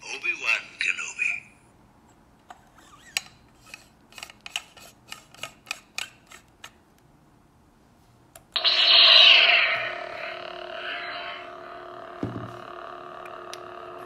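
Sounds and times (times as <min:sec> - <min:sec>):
electronic lightsaber hum: 0:08.6 - 0:14.0.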